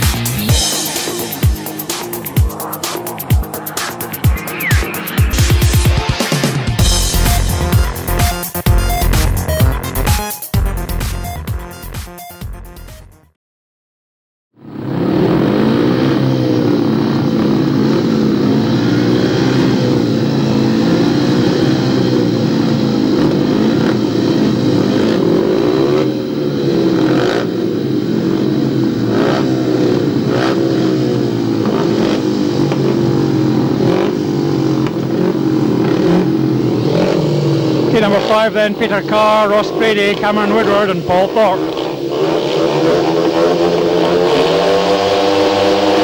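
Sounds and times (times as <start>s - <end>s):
motorcycle engines revving: 0.0s - 10.2s, 14.6s - 46.0s.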